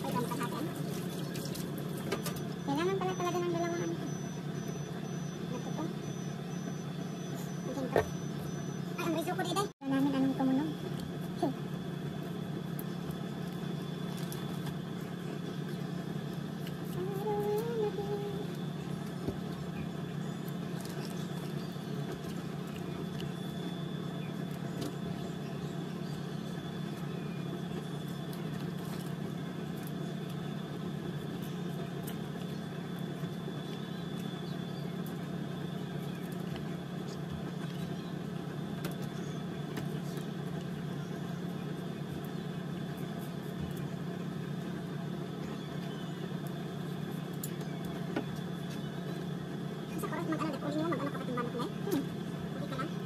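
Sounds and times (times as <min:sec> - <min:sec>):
high constant whine: 0:00.0 - 0:53.0
mechanical hum: 0:00.0 - 0:53.0
wavering voice-like sound: 0:16.9 - 0:18.6, 0:49.9 - 0:53.0.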